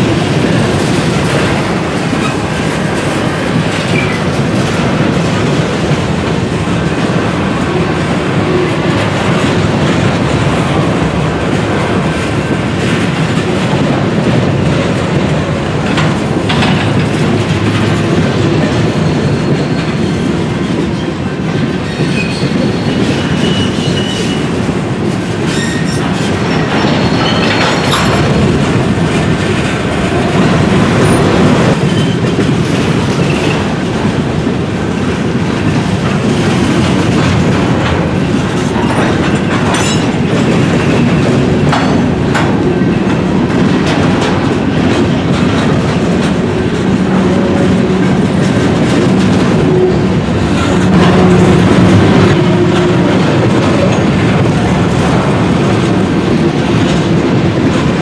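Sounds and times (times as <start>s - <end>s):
clickety-clack over rail joints: 0.0s - 58.0s
train wheels rumbling on rail: 0.0s - 58.0s
clanks: 11.8s - 19.0s.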